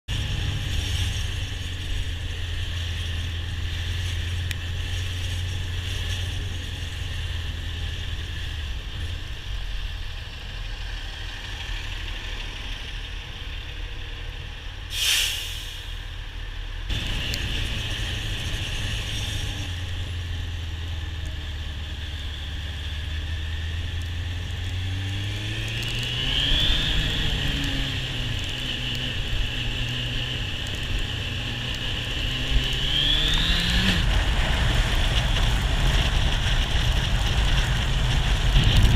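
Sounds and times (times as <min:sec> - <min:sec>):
air brakes hissing: 0:14.9 - 0:16.1
motorcycle engine running: 0:16.9 - 0:38.9.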